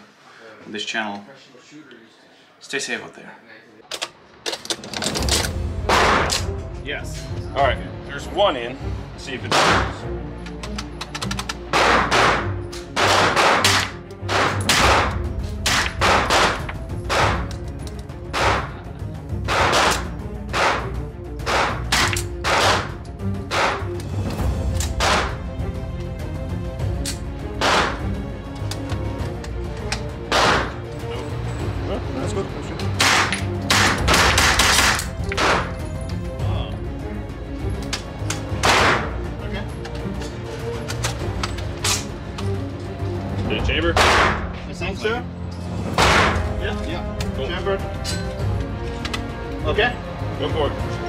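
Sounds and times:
background music: 0:02.3 - 0:51.0
gunshots echoing indoors: 0:05.8 - 0:06.5, 0:09.5 - 0:10.0, 0:11.7 - 0:17.5, 0:18.3 - 0:24.0, 0:27.6 - 0:28.1, 0:30.3 - 0:30.9, 0:33.0 - 0:35.8, 0:38.5 - 0:39.2, 0:43.9 - 0:44.5, 0:45.9 - 0:46.6.

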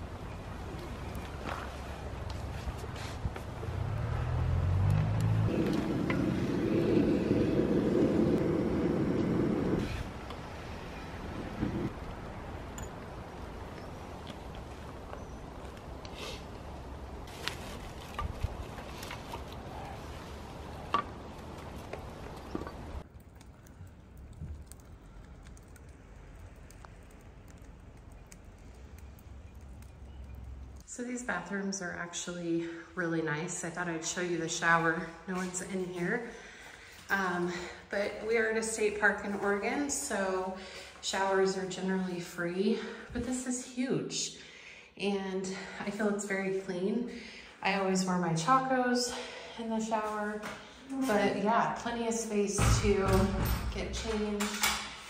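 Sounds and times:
torch flame rushing: 0:05.5 - 0:12.0.

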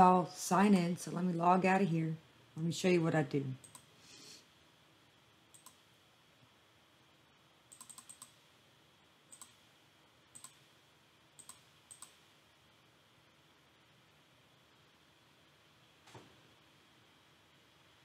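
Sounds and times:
computer mouse clicking: 0:03.6 - 0:03.9, 0:05.5 - 0:05.8, 0:07.7 - 0:08.4, 0:09.3 - 0:09.6, 0:10.3 - 0:10.6, 0:11.4 - 0:12.3.

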